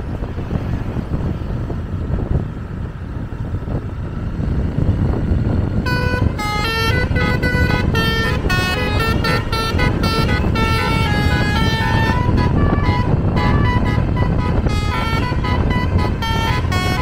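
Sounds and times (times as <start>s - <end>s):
road and engine rumble: 0.0s - 17.0s
bus air horn melody: 5.8s - 17.0s.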